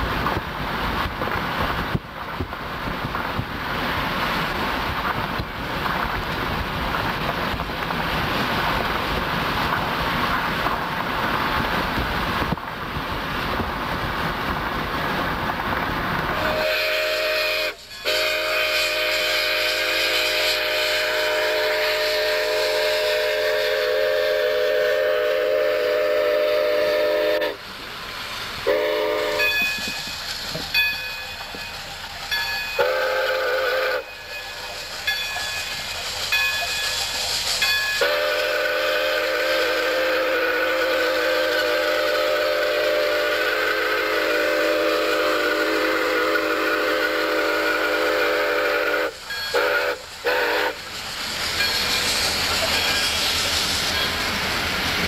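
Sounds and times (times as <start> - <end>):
steam whistle blasts: 16.3 - 27.6, 28.6 - 29.8, 32.8 - 34.4, 37.9 - 50.8.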